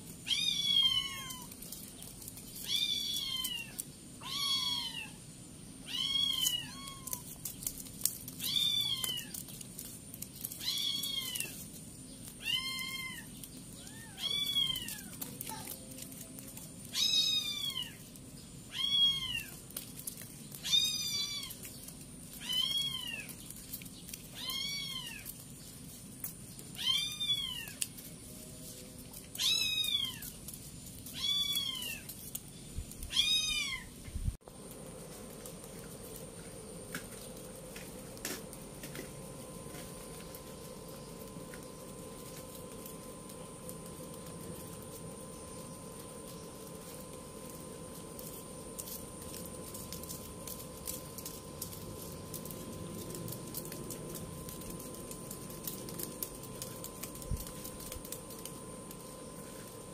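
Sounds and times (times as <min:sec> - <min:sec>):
faint steady hum: 0:00.0 - 0:59.9
kitten meowing: 0:00.2 - 0:01.5, 0:05.8 - 0:07.3, 0:12.4 - 0:15.7, 0:16.9 - 0:18.0, 0:18.7 - 0:19.6, 0:26.8 - 0:27.8, 0:33.1 - 0:33.9.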